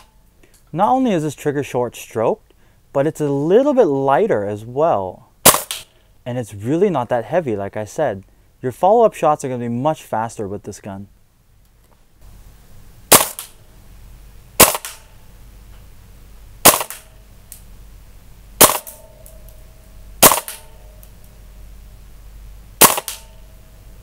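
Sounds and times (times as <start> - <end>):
airsoft rifle shots: 5.4 - 5.9, 13.1 - 13.6, 14.6 - 15.1, 16.6 - 17.2, 18.6 - 19.3, 20.2 - 20.8, 22.8 - 23.4.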